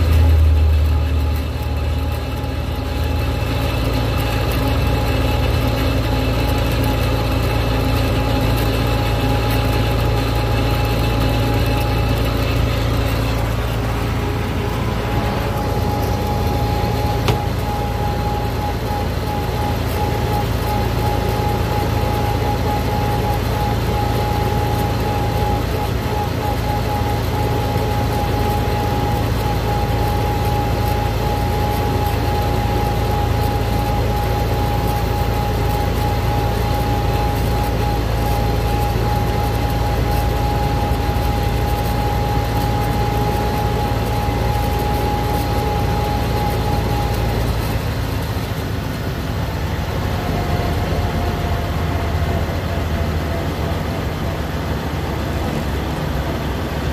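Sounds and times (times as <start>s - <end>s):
road and wind noise: 0.0s - 21.9s
steady high whine: 0.0s - 56.9s
tractor engine running: 0.0s - 56.9s.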